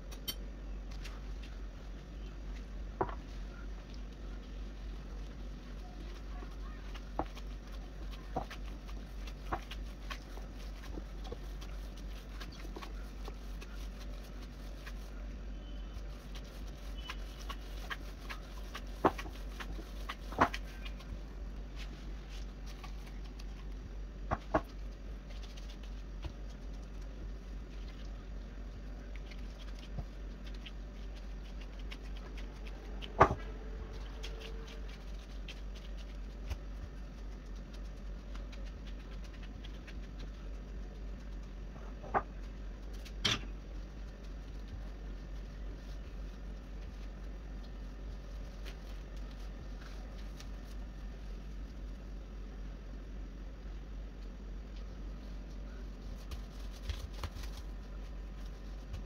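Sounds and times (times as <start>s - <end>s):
hands working dough rustling: 0.0s - 59.0s
steady low hum: 0.0s - 59.0s.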